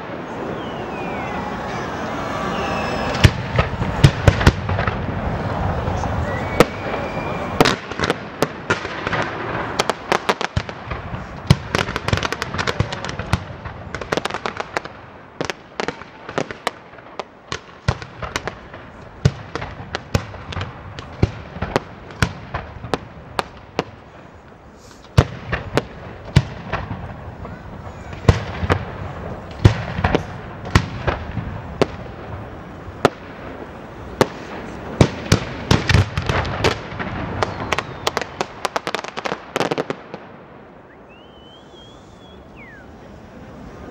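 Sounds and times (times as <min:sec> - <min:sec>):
fireworks bangs and crackling: 0:00.0 - 0:43.9.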